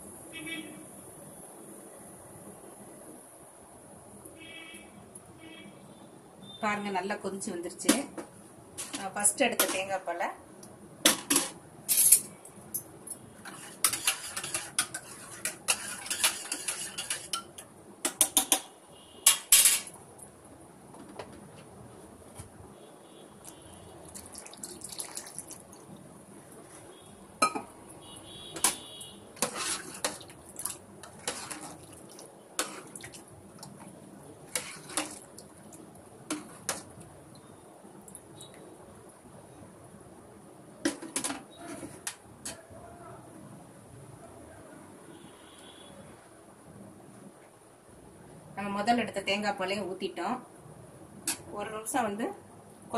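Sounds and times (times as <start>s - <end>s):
metal spoon scraping metal pot: 13.4s - 17.6s, 29.4s - 30.3s, 31.0s - 31.8s, 34.5s - 35.2s.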